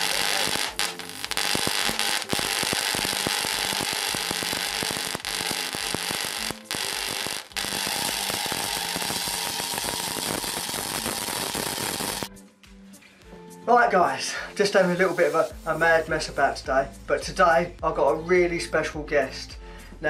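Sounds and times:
electrical arc hissing and crackling: 0:00.0 - 0:12.3, 0:14.6 - 0:16.2.

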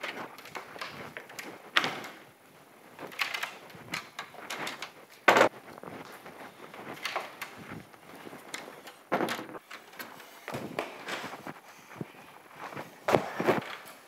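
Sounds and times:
footsteps: 0:00.0 - 0:14.0.

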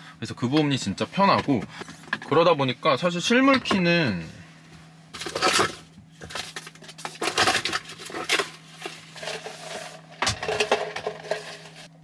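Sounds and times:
small objects clattering in a bin: 0:05.2 - 0:11.9.

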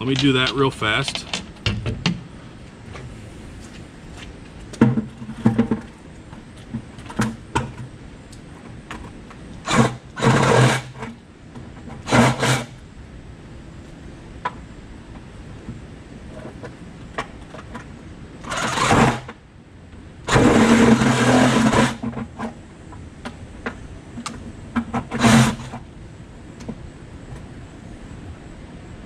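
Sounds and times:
reciprocating saw cutting plastic: 0:09.6 - 0:11.1, 0:12.0 - 0:12.8, 0:18.4 - 0:19.3, 0:20.3 - 0:22.3, 0:24.9 - 0:25.8.

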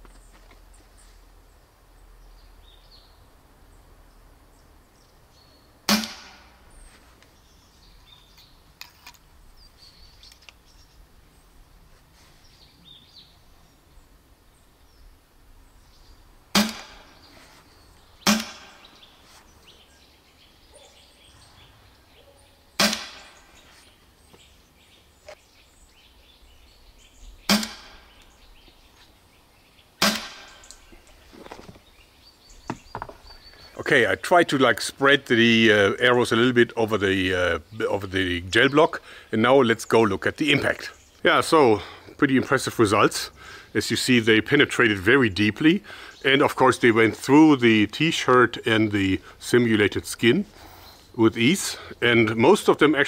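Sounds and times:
air rifle shots: 0:05.9 - 0:06.6, 0:16.5 - 0:17.2, 0:18.2 - 0:18.9, 0:22.8 - 0:23.5, 0:27.5 - 0:28.2, 0:30.0 - 0:30.6.

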